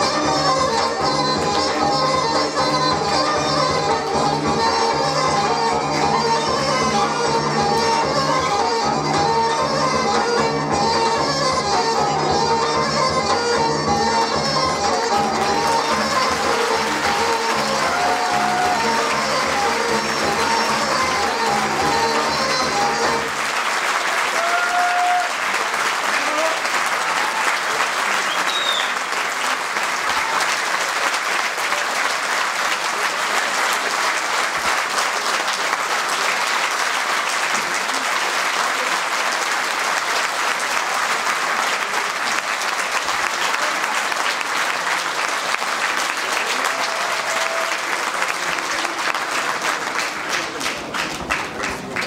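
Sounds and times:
audience applauding: 0:14.6 - 0:52.0.

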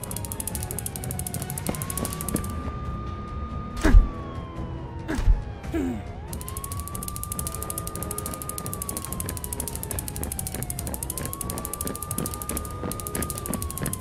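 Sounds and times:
fast even clicking: 0:00.0 - 0:02.6, 0:06.3 - 0:14.0
ambulance siren wailing: 0:00.0 - 0:14.0.

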